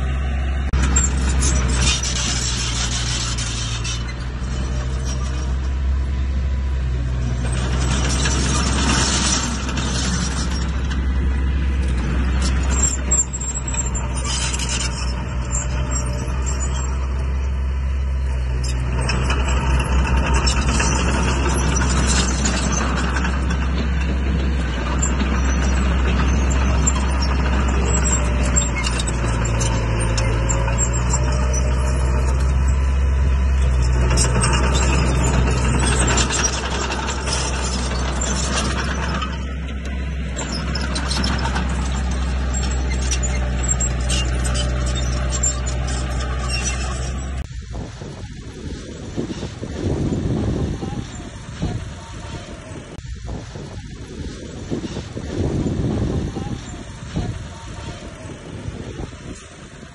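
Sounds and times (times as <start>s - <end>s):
diesel machinery engine drone: 0.0s - 59.9s
hissing scraping noise: 0.8s - 5.8s.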